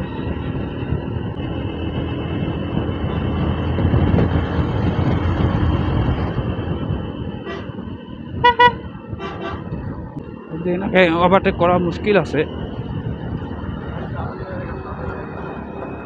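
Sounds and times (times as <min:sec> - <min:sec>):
wind on microphone: 0:00.0 - 0:10.3, 0:11.4 - 0:16.0
horn beeps: 0:08.4 - 0:09.6.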